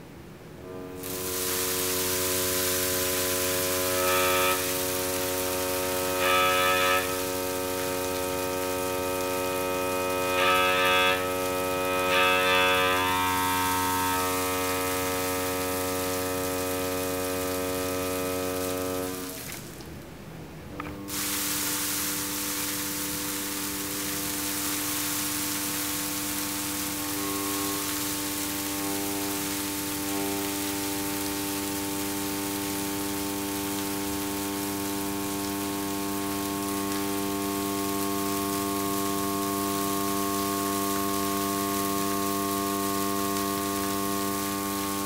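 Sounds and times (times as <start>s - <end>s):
vibrating plate buzzing tone: 0.6s - 19.8s, 20.7s - 45.0s
grains bouncing hiss: 1.0s - 20.0s, 20.7s - 45.0s.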